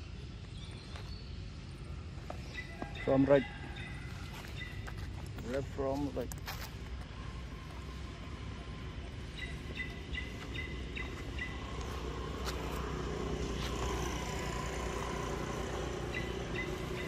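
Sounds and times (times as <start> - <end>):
vehicle engine running: 4.5 - 17.0.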